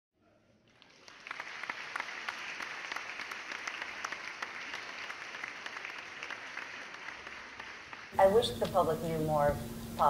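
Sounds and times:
audience applauding: 0.6 - 8.2.

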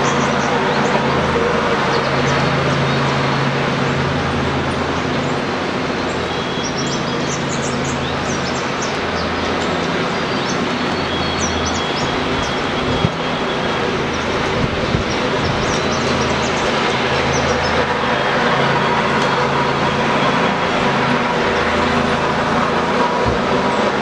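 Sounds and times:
continuous rushing noise: 0.0 - 24.0
small birds chirping: 6.0 - 18.0.

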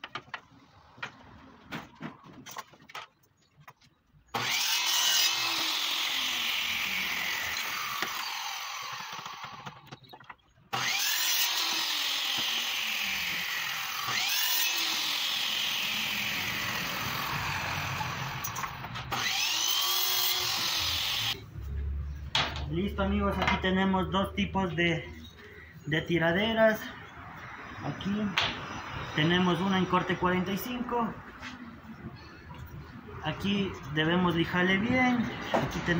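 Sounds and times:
miter saw cutting wood: 4.3 - 9.9, 10.7 - 21.4.

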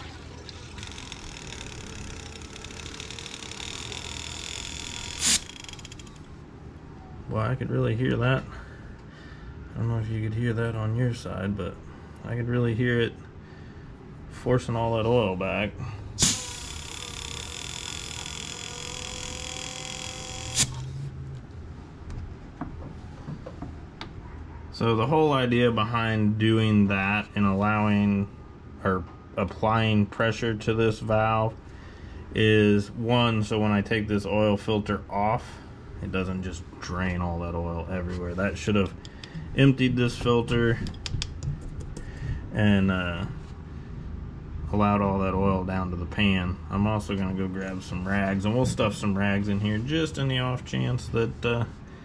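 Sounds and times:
air gun click: 4.6 - 6.2, 16.2 - 20.9
compressed air hissing: 16.2 - 17.1.

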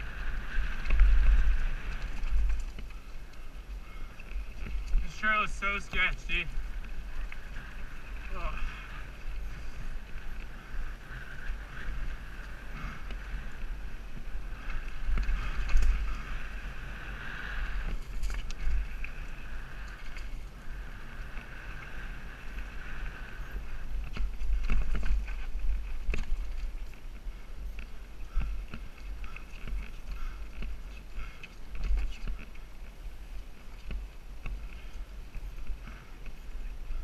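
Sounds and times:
bike rattling clicks and knocks: 0.0 - 8.4, 11.8 - 16.4, 17.8 - 20.5, 23.8 - 32.7
tyres rolling on dirt: 0.0 - 37.0
wind buffeting microphone: 0.0 - 37.0.

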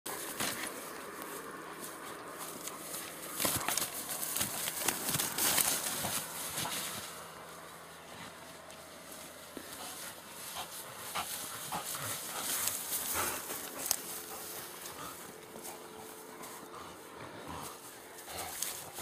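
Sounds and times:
dog moving clicks and rustles: 2.5 - 7.1.

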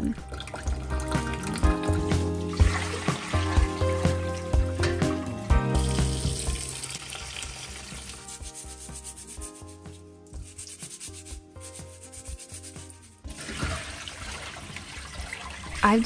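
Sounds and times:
brush scrubbing wet carrot: 7.8 - 13.3.

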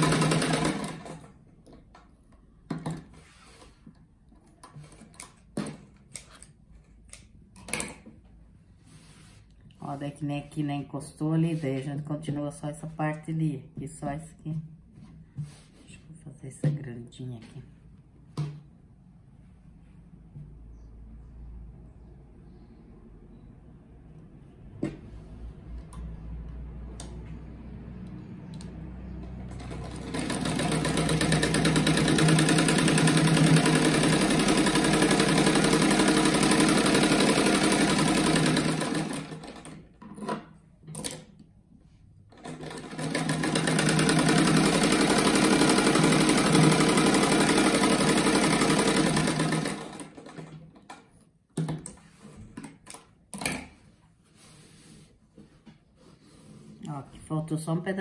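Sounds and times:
sewing machine stitching: 0.0 - 1.4, 29.2 - 40.4, 42.3 - 51.1.

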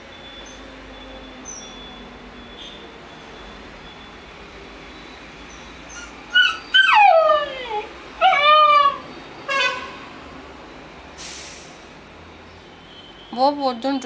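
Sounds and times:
puppy howling: 5.5 - 9.0
puppy yip: 5.5 - 9.0.

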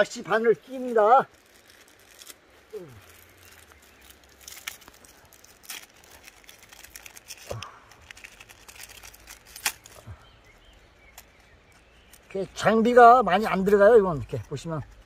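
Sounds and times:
packet crinkling: 0.6 - 10.1.

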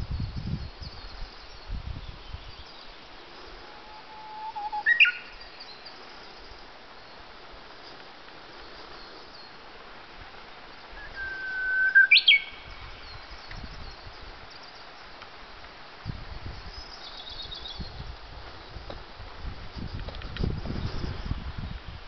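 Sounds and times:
faint bird twittering: 2.4 - 7.2, 10.9 - 15.0
warbler whistling song: 3.8 - 6.0, 11.0 - 14.8, 16.5 - 18.0.

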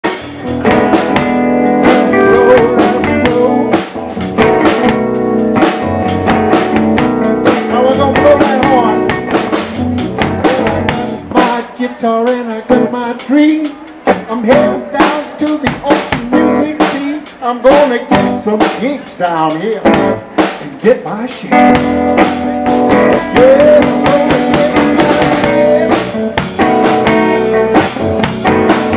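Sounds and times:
electric bass: 0.0 - 11.6, 21.5 - 28.9
drum kit: 0.0 - 28.9
acoustic guitar: 0.1 - 28.9
person singing: 1.8 - 4.0, 7.2 - 9.5, 10.2 - 21.8, 22.9 - 28.0.

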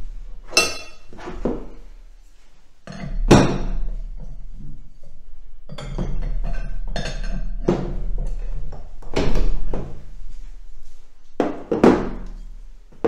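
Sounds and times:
metal wrenches clanking: 5.7 - 8.6.

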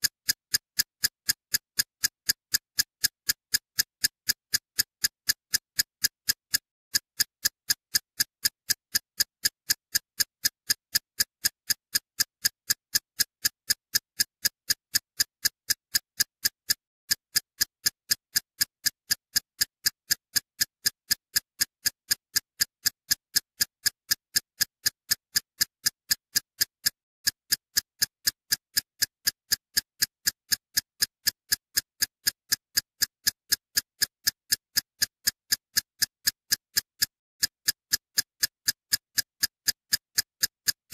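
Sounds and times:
steady sharp ticking: 11.4 - 40.9.

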